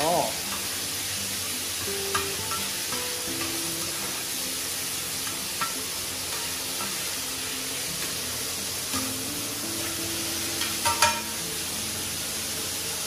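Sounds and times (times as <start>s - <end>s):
meat sizzling in a pan: 0.0s - 13.0s
metal spatula scraping a pan: 0.5s - 9.0s.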